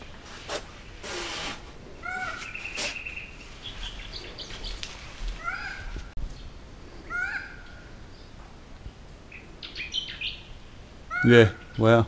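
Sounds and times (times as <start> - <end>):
bird calling: 1.0 - 6.1, 7.0 - 8.3, 9.3 - 12.0
brief scuffing noise: 2.4 - 3.2.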